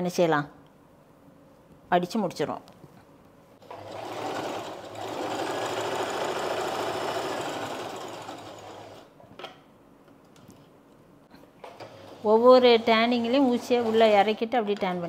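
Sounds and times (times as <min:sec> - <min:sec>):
sewing machine running: 0:03.6 - 0:09.1.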